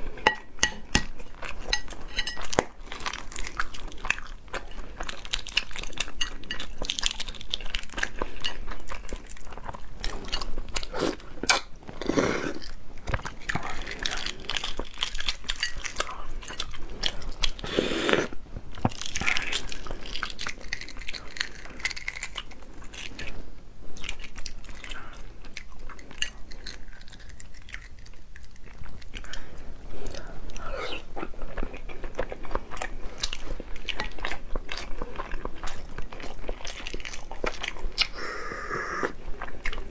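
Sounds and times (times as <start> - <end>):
chewing: 0.0 - 39.9
eggshell crackling: 12.5 - 23.4.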